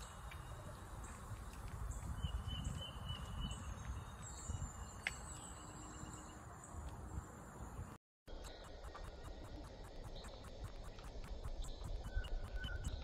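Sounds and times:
low wind rumble: 0.0 - 8.0
small birds chirping: 0.0 - 13.0.

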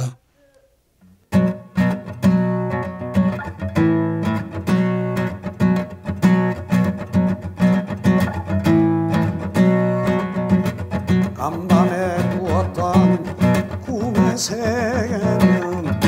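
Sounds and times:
acoustic guitar strumming chords: 1.0 - 16.0.

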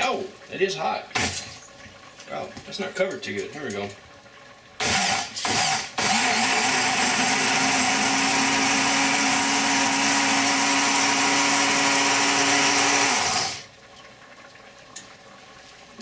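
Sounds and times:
blender motor running: 4.8 - 13.7.

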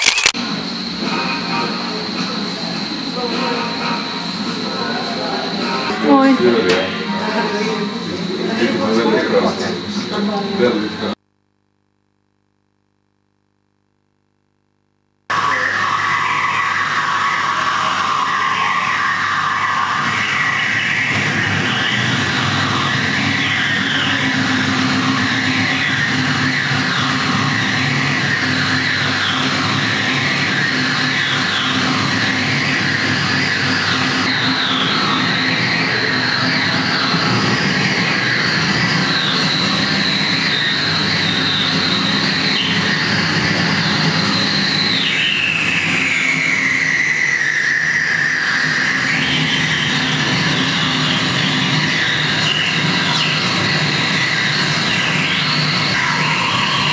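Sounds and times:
noisy electronic drone: 0.0 - 56.9
high wavering whining tones: 15.4 - 56.9.

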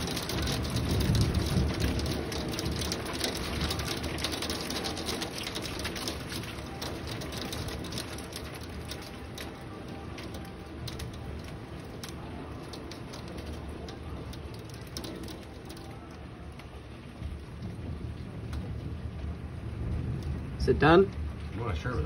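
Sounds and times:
heavy rain on window glass: 0.0 - 22.0
low rumble: 13.2 - 22.0.

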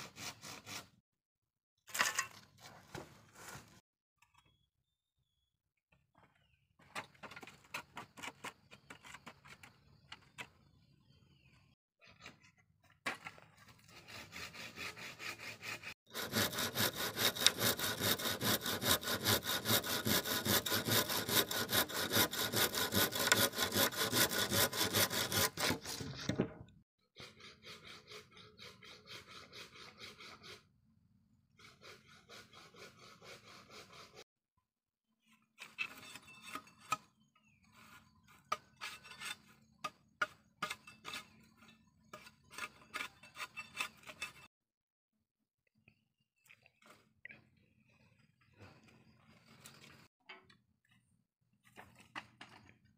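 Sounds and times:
hand saw cutting wood: 0.0 - 0.9, 13.7 - 26.4, 27.2 - 30.7, 31.6 - 34.2, 37.8 - 41.4, 42.1 - 44.5.

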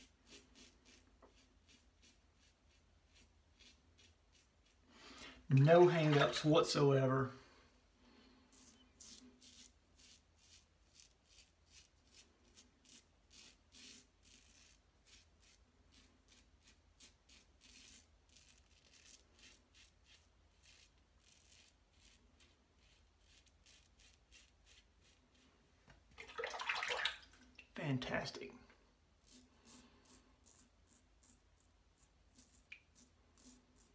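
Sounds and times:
razor scraping stubble: 0.0 - 4.8, 8.5 - 25.6, 29.2 - 33.9.

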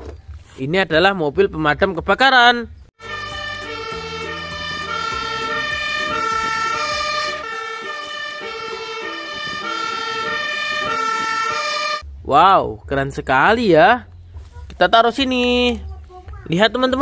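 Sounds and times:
fire engine two-tone siren: 3.0 - 12.0
truck engine running: 3.0 - 12.2.

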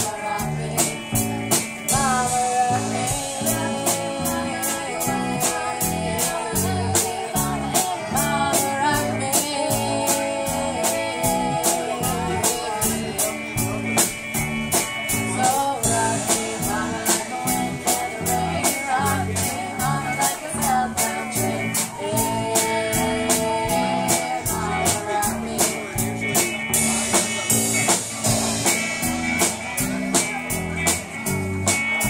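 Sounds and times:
woman singing: 0.0 - 14.1, 15.1 - 26.4
drum kit beat: 0.0 - 32.0
electric guitars: 0.0 - 32.0.

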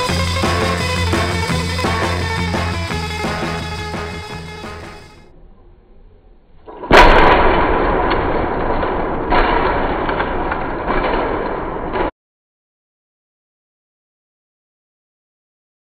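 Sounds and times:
loud rumbling noise: 0.0 - 5.2
loud boom: 6.9 - 12.1.

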